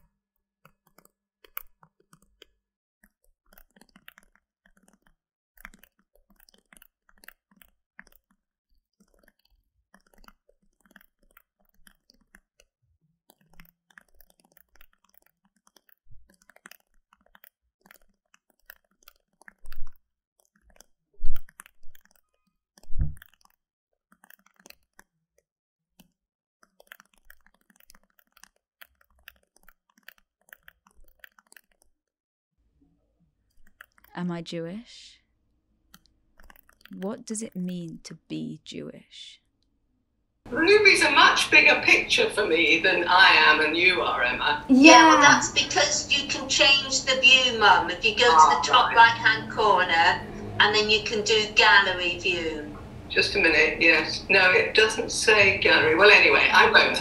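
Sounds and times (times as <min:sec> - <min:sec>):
computer keyboard typing: 0:00.0 - 0:08.4, 0:09.0 - 0:12.7, 0:13.3 - 0:25.2, 0:26.0 - 0:32.0, 0:33.5 - 0:34.5, 0:35.9 - 0:38.3, 0:40.8 - 0:52.4.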